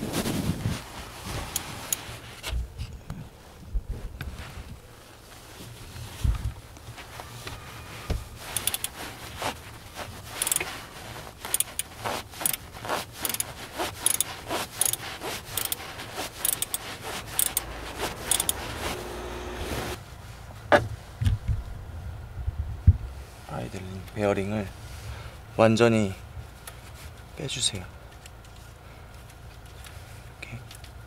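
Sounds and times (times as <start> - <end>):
socket wrench clicking: 8.5 - 8.9, 10.4 - 10.6, 11.5 - 12.6, 13.2 - 13.4, 14.0 - 15.8, 16.4 - 18.6.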